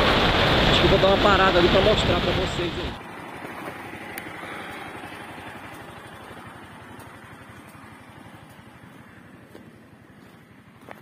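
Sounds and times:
motorcycle engine idling: 3.0 - 11.0.

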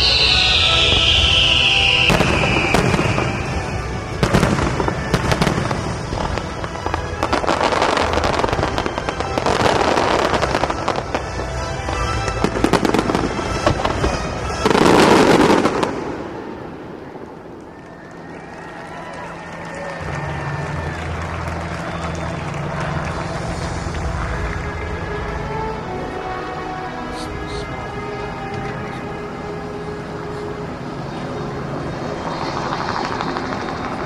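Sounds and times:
music playing: 0.0 - 18.2, 19.3 - 34.0
high falling firework whistle: 0.0 - 25.4
fireworks bangs and crackles: 0.0 - 26.1, 31.9 - 34.0.

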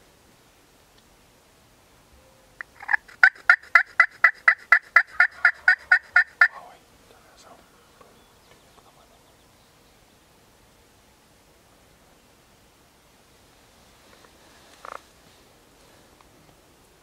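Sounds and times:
turkey yelping: 2.6 - 6.6.

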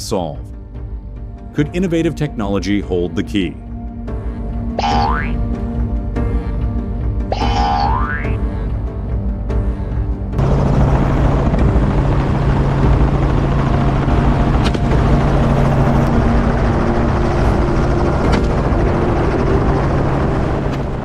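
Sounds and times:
helicopter rotor and engine drone: 0.0 - 21.0.

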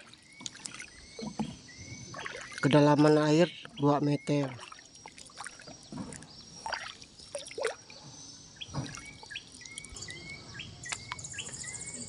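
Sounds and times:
paddle strokes in water: 0.0 - 3.8, 4.4 - 10.0
water splashing and dripping: 0.0 - 8.0, 8.6 - 10.1, 10.8 - 11.6
faint bird chirps: 0.0 - 12.0.

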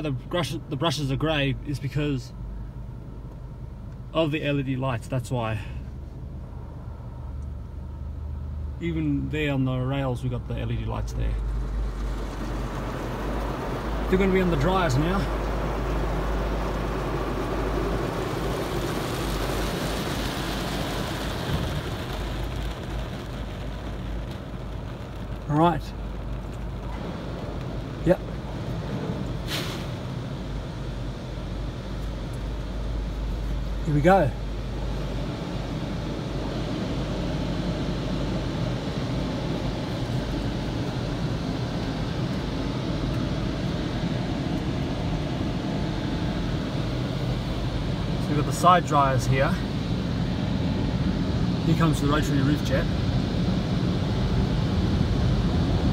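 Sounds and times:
car wash dryer blowers: 8.8 - 55.9
water spraying on car windscreen: 11.4 - 28.8.

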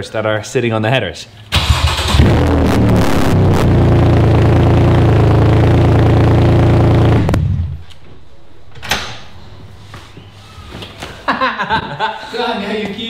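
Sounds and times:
loud car engine idling: 2.2 - 7.8.

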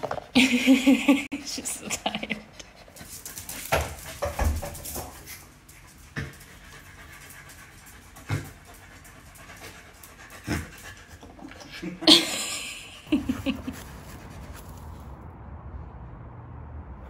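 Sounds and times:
dog paws on tile floor: 0.0 - 15.2
dog panting: 1.6 - 15.2.

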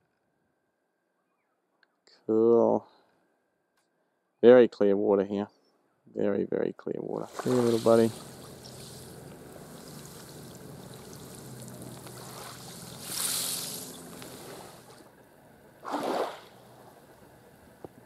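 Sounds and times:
faint low hum: 6.6 - 18.0
water washing on a beach: 7.2 - 15.1, 15.8 - 16.9.

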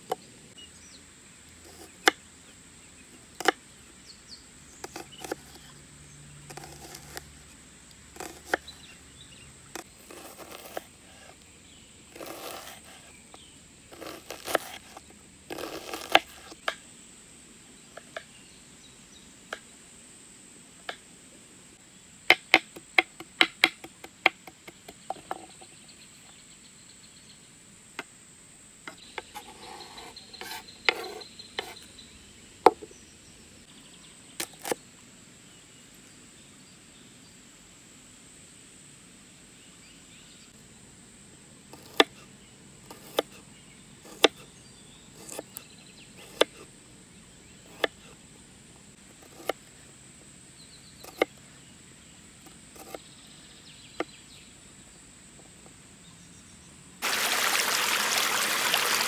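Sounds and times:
rustle: 0.0 - 59.0
knife chopping on wooden board: 6.5 - 7.2, 8.2 - 8.7, 12.2 - 13.0, 14.0 - 16.8, 29.2 - 31.8, 41.8 - 42.2, 44.0 - 44.4, 46.2 - 46.6, 49.2 - 49.6, 52.8 - 53.0.

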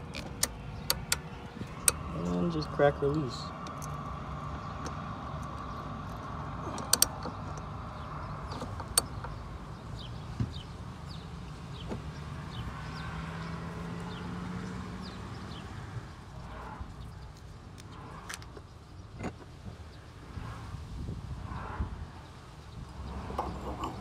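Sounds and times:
ratchet clicking: 0.1 - 2.1.

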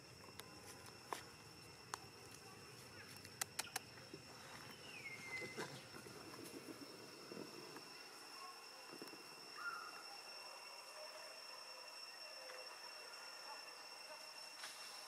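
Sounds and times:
high-pitched insect drone: 0.0 - 15.0
sharp clicks: 3.2 - 3.9.

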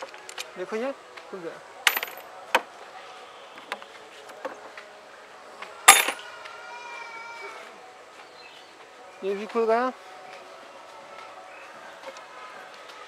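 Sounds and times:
ringing metallic clank: 1.9 - 2.2, 5.9 - 6.2
small metal parts clicking: 1.9 - 2.2, 5.9 - 6.2.

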